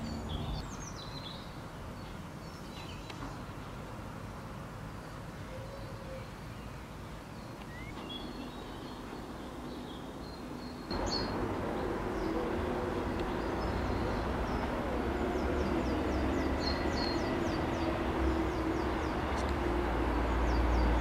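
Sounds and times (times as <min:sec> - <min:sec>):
bird chirps: 0:05.5 - 0:21.0.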